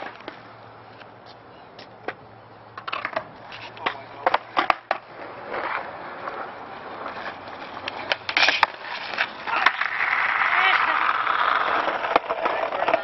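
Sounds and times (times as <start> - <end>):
skateboard rolling over asphalt: 0.0 - 1.1, 2.0 - 13.0
skateboard clacks: 1.3 - 13.0.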